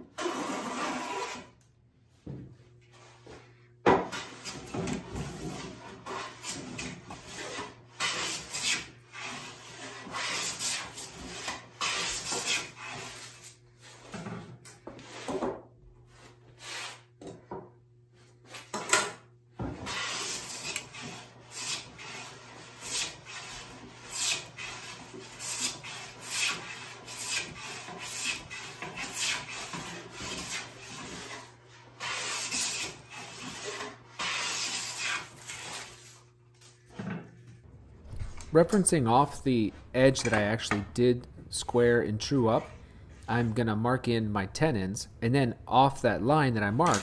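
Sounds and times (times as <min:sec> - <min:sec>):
hand plane shaving wood: 0:00.2 - 0:01.5, 0:04.1 - 0:14.0, 0:19.8 - 0:36.1.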